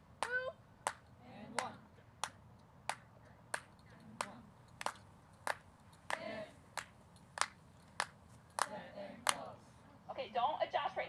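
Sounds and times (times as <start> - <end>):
voices: 0.2 - 2.4, 3.1 - 5.0, 6.0 - 6.8, 8.5 - 11.0
hand claps: 0.2 - 9.5.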